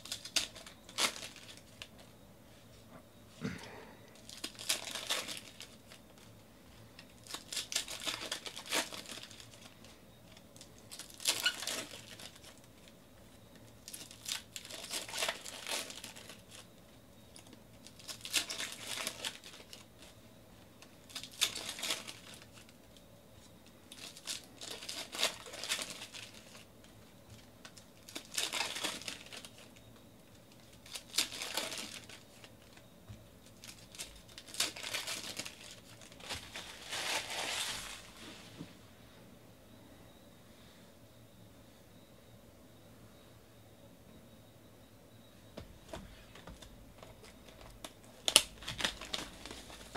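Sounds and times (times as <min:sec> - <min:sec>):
foil wrappers crinkling and tearing: 0:00.0 - 0:02.1, 0:03.5 - 0:06.3, 0:07.0 - 0:12.9, 0:13.6 - 0:20.2, 0:20.8 - 0:23.0, 0:23.9 - 0:26.7, 0:27.4 - 0:32.8, 0:33.4 - 0:38.2, 0:46.3 - 0:49.9.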